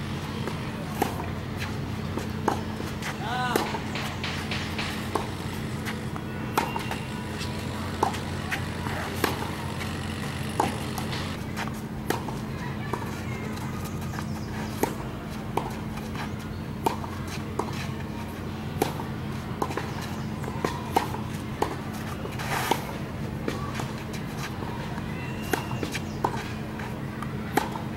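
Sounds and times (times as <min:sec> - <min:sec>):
steady low hum: 0:00.0 - 0:12.8
tennis balls hit with racquets: 0:00.0 - 0:27.9.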